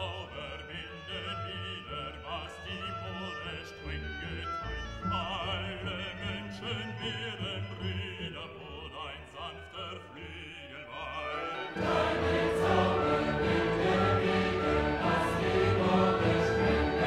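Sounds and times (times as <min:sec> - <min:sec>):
classical music: 0:00.0 - 0:17.0
vibrato singing voice: 0:00.0 - 0:17.0
choir singing: 0:11.0 - 0:17.0.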